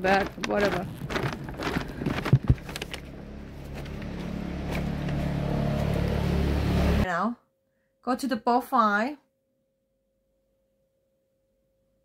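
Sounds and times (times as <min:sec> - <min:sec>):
vehicle engine running: 0:00.0 - 0:07.0.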